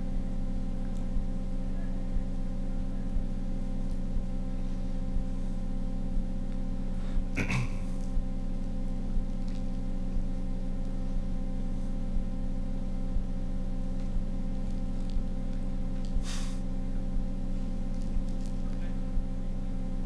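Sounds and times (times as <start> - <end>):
electrical hum: 0.0 - 20.0
short burst of hiss: 16.2 - 16.6.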